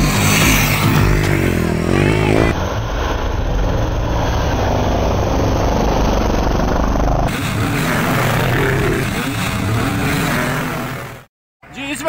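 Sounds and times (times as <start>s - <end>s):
dirt bike engine rumble: 0.0s - 11.2s.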